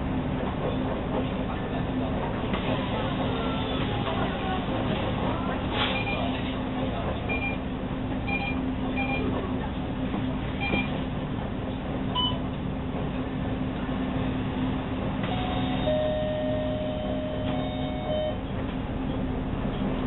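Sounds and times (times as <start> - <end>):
bus engine humming: 0.0 - 20.0
short electronic beep: 15.3 - 18.4.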